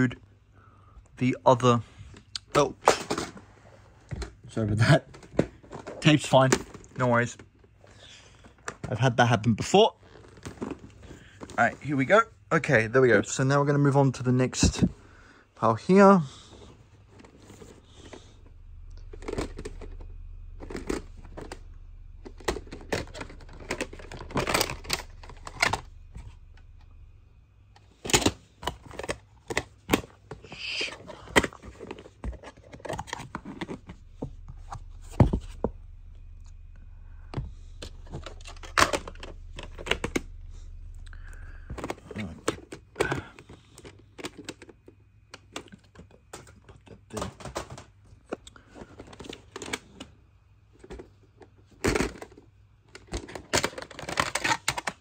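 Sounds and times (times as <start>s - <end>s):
low handling rumble: 16.5s - 28.3s, 31.5s - 43.3s
plastic cases clacking: 19.1s - 20.0s, 20.6s - 26.3s, 27.8s - 35.7s, 41.7s - 50.1s, 50.8s - 55.0s.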